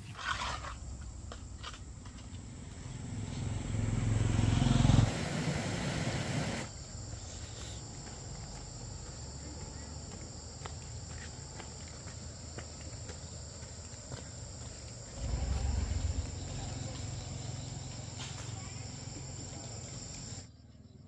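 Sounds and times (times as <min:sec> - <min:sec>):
insects chirring: 0:00.1 - 0:05.0, 0:06.6 - 0:21.0
low rumble: 0:00.4 - 0:04.5, 0:15.2 - 0:18.2.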